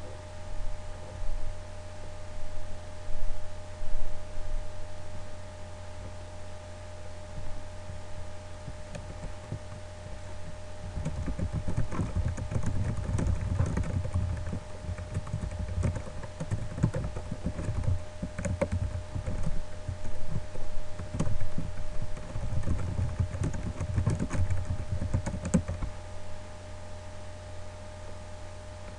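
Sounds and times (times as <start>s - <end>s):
electrical hum: 0.0s - 28.9s
typing on computer keyboard: 8.9s - 9.8s, 10.8s - 25.9s.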